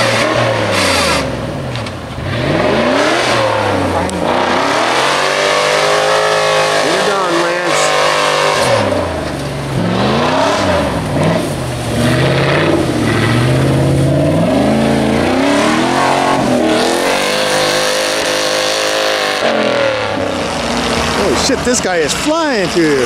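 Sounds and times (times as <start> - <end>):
engine revving hard: 0.0 - 1.5, 2.2 - 21.6
tyres churning through snow: 0.0 - 23.0.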